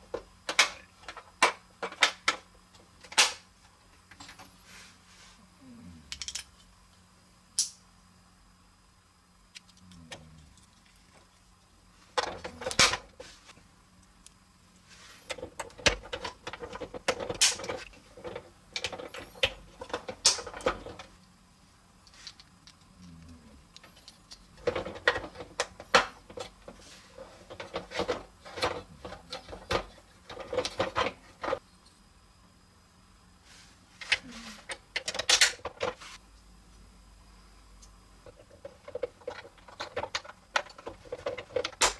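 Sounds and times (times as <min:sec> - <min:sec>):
plastic toy parts clicking together: 0:06.1 - 0:06.6.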